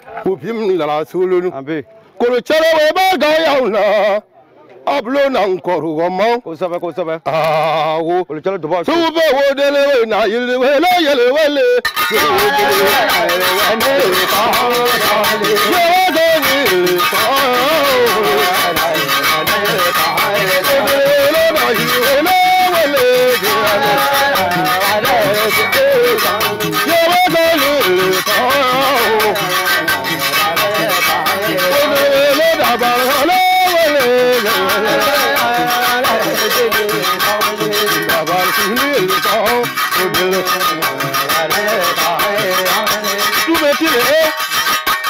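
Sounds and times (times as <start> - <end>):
person singing: 10.6 - 44.7
balafon playing: 11.8 - 45.0.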